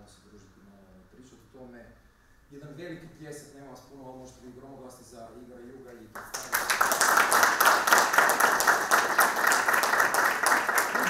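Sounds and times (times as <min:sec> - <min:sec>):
audience applauding: 0:06.2 - 0:11.0.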